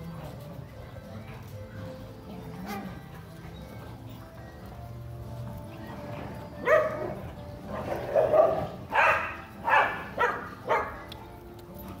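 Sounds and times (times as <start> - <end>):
dogs barking: 6.6 - 11.1.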